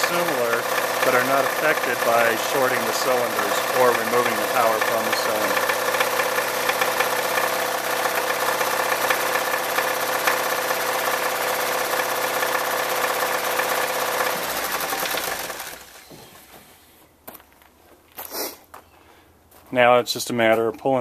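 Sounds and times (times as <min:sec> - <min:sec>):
car engine idling with knock: 0:00.0 - 0:16.5
engine running down: 0:00.0 - 0:16.6.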